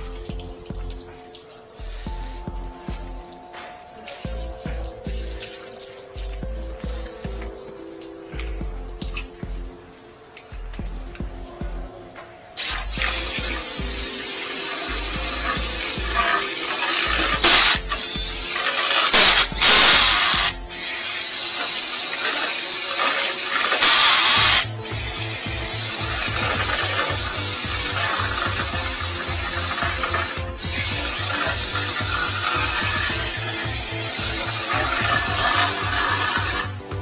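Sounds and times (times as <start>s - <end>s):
drain-cleaning machine whining: 11.6s - 37.0s.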